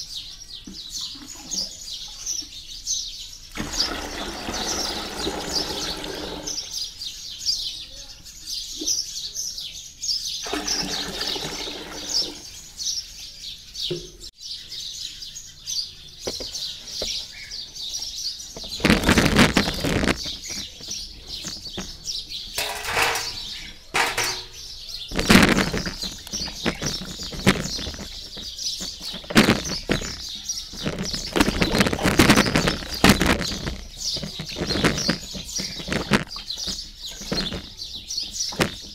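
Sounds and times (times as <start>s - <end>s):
birds chirping: 0.0s - 38.9s
water running into a tub: 3.5s - 6.8s, 10.4s - 12.6s, 22.6s - 24.6s.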